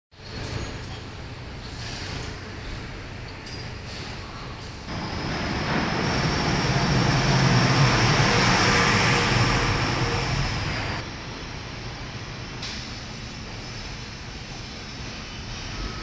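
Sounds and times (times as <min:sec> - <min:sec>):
large vehicle passing by: 0:04.9 - 0:11.1
thin high whine: 0:04.9 - 0:12.1.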